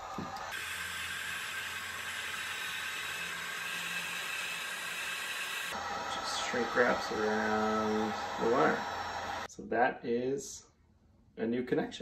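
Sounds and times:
heat gun blowing whir: 0:00.0 - 0:09.5.

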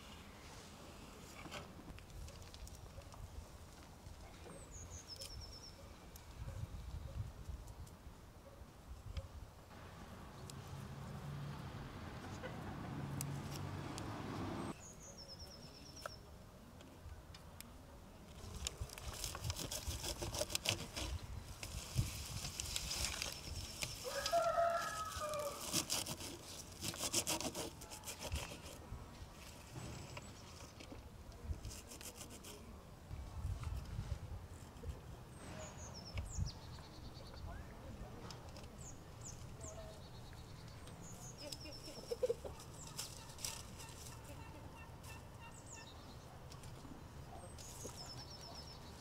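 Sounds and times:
greens rustling on a metal pan: 0:18.3 - 0:26.8
rooster crowing: 0:24.0 - 0:25.6.

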